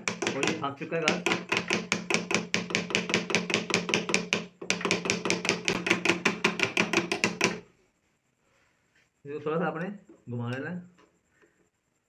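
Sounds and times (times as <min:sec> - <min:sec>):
sewing machine clacking: 0:00.0 - 0:07.6.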